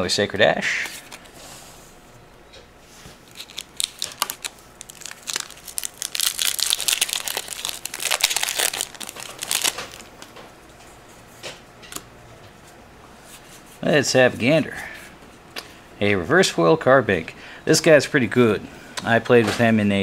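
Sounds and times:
foil wrapper tearing and crinkling: 0:03.3 - 0:10.1.

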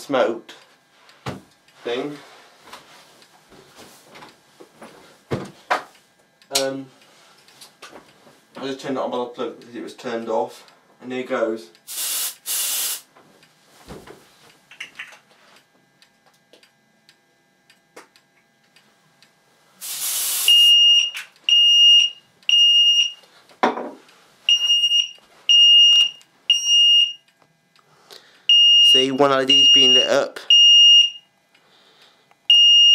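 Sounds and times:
aerosol spray hissing: 0:11.9 - 0:13.1, 0:19.8 - 0:20.7
fire alarm beeping: 0:20.3 - 0:23.2, 0:24.5 - 0:27.3, 0:28.5 - 0:31.3, 0:32.5 - 0:32.9.

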